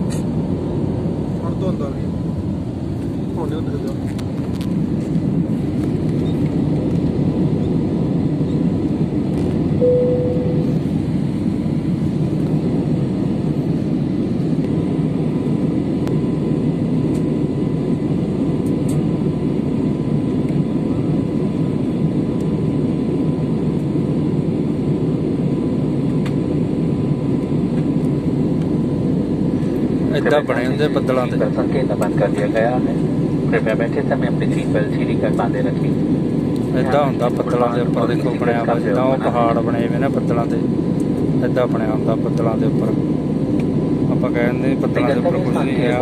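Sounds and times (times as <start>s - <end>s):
jet airliner cabin rumble: 0.0s - 46.0s
short tone: 9.8s - 10.9s.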